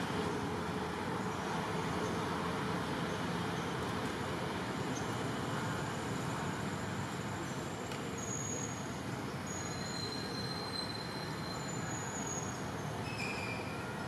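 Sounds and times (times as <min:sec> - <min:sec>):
outdoor background hiss: 0:00.0 - 0:14.0
faint high whistling tones: 0:08.1 - 0:14.0.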